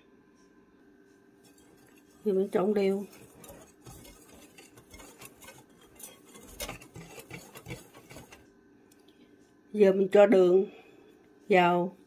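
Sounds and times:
utensil scraping a glass bowl: 0:01.4 - 0:08.4.

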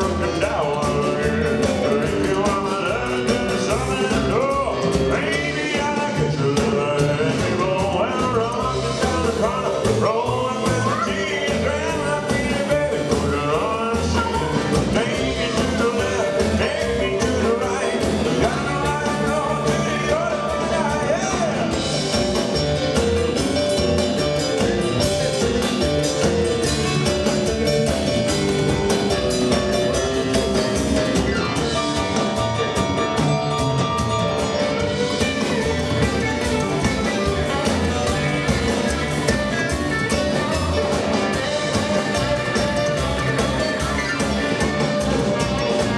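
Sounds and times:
man singing: 0:00.0 - 0:23.2, 0:34.5 - 0:45.9
rockabilly band playing: 0:00.0 - 0:45.9.

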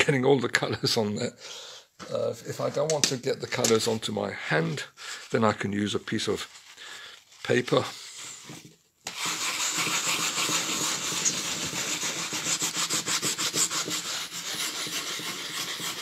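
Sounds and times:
paper towel rasping over salt: 0:05.1 - 0:16.0.

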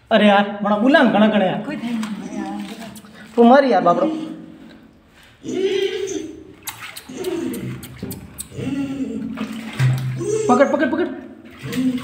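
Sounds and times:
water splashes: 0:01.5 - 0:05.0, 0:06.1 - 0:12.0.

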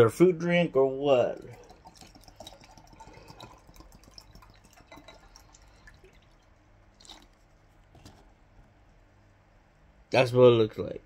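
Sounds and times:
drink pouring into glass: 0:01.1 - 0:07.4.

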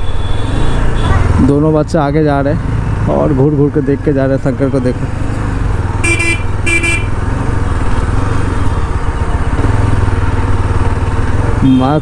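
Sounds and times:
horn beeps: 0:00.0 - 0:01.3, 0:06.0 - 0:07.2
motorcycle engine running: 0:00.6 - 0:12.0.

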